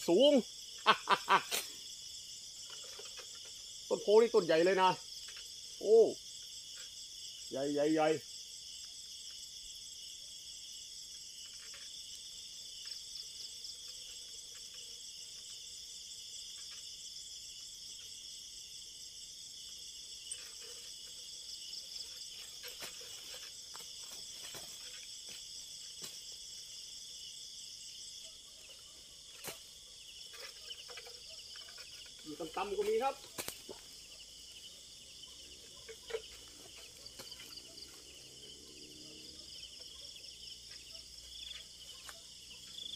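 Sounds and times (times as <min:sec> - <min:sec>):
night insects trilling: 0:00.0 - 0:42.9
faint rustles and knocks: 0:20.3 - 0:26.7.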